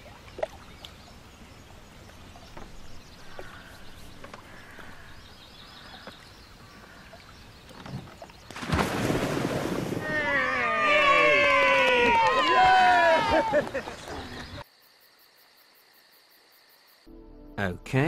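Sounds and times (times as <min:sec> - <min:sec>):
faint birds chirping: 0:00.0 - 0:08.7, 0:12.8 - 0:15.1.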